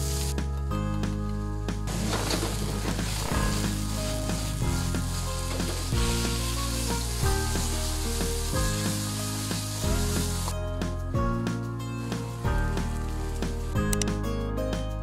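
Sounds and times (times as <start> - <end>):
oil sizzling in a wok: 0.0 - 0.4, 3.0 - 10.6
background music with bass: 0.0 - 15.0.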